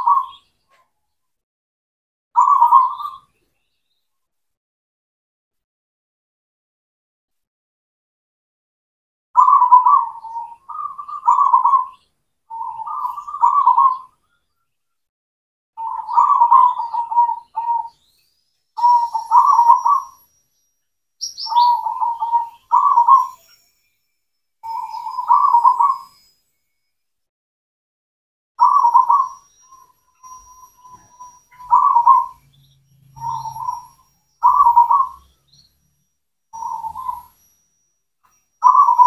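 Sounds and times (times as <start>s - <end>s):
dove cooing: 0.0s - 0.4s, 9.4s - 14.1s, 15.8s - 18.0s, 18.8s - 20.2s, 21.5s - 23.4s, 24.7s - 26.1s, 28.6s - 29.4s, 30.4s - 32.4s, 33.1s - 35.2s, 36.6s - 37.3s, 38.6s - 39.0s.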